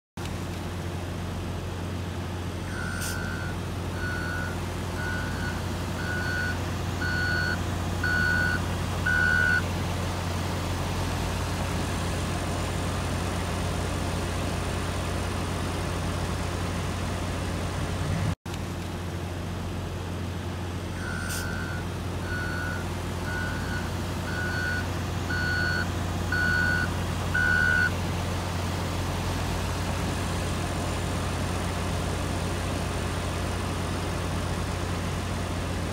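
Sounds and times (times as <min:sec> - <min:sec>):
diesel engine running: 0:00.2 - 0:35.9
reversing alarm beeping: 0:02.7 - 0:09.7, 0:21.0 - 0:28.0.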